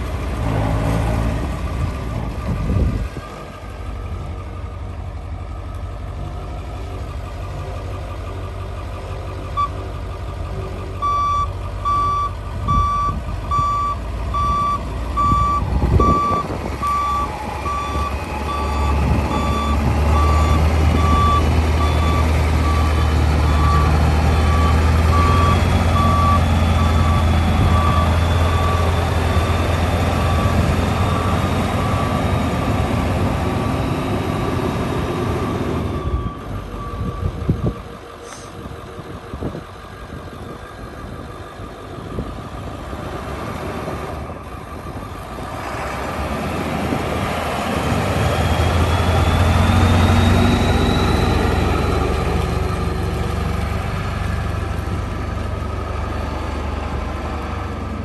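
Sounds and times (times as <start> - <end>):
diesel truck engine running: 0.0 - 58.0
backup alarm beeping: 11.0 - 29.4.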